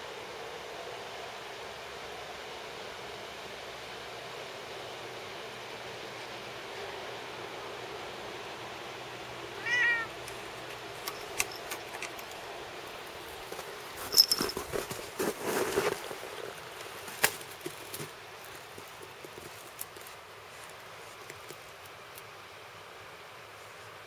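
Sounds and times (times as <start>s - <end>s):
cat meowing: 9.6s - 10.2s
rustling through dry twigs: 10.2s - 22.3s.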